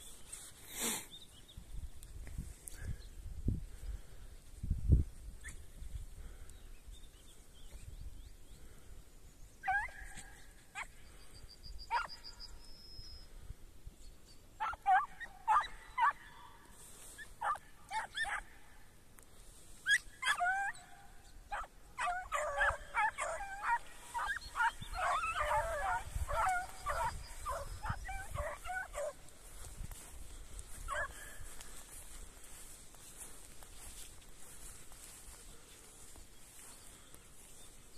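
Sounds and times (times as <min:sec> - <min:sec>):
hounds yelping and baying: 0:09.6 - 0:12.6, 0:14.6 - 0:18.8, 0:19.7 - 0:35.8.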